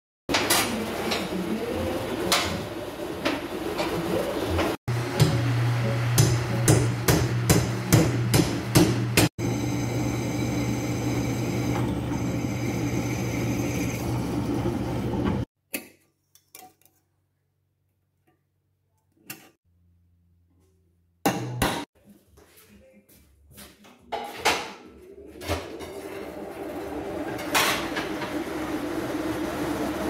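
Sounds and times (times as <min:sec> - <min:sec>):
power hammer striking iron: 0:05.1 - 0:09.3.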